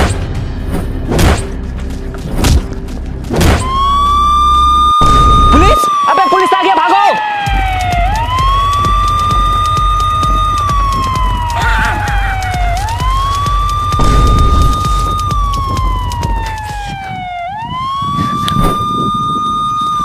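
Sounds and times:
police siren wailing: 0:03.6 - 0:20.0
steady low beat: 0:07.5 - 0:17.9.

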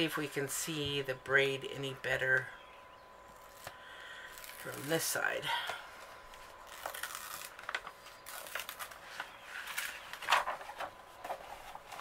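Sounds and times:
plastic film crinkling: 0:03.3 - 0:05.2, 0:06.0 - 0:12.0.

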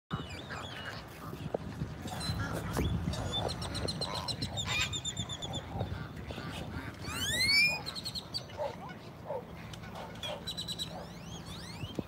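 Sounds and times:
wind rumble: 0:00.1 - 0:08.2
waterfowl calling: 0:02.1 - 0:12.0.

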